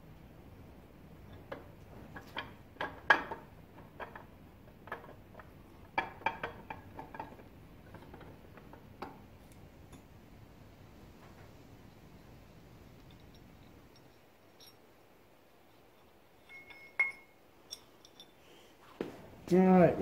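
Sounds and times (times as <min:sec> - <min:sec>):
metal chain clinking and rattling: 0:12.8 - 0:18.7.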